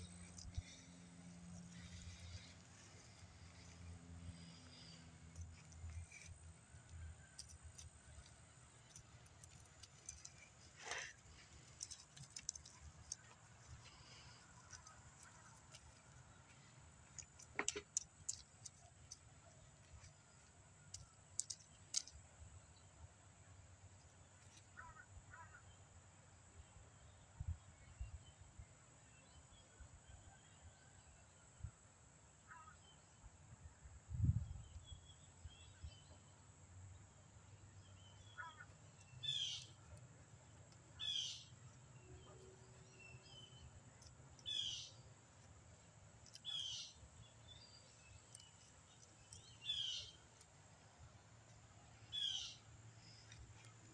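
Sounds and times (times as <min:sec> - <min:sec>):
sharp clicks: 0:17.0 - 0:22.2
bird calls: 0:24.4 - 0:25.8, 0:37.8 - 0:40.0, 0:41.0 - 0:45.1, 0:46.2 - 0:50.3, 0:52.0 - 0:53.9.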